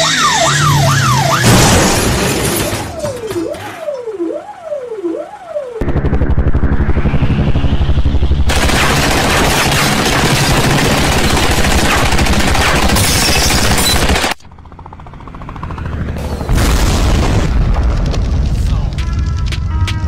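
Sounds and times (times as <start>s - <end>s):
dense rumble: 5.8s - 9.3s, 16.5s - 20.0s
machine-gun fire: 8.5s - 14.4s
loud blast: 16.5s - 18.7s.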